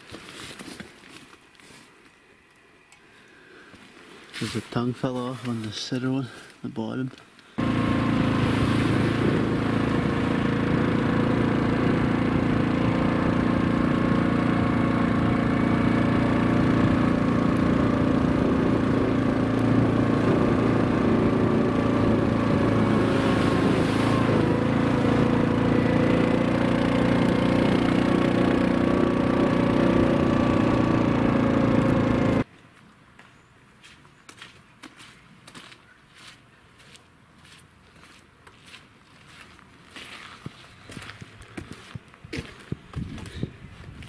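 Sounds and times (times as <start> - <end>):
atv engine running: 7.6 - 32.5.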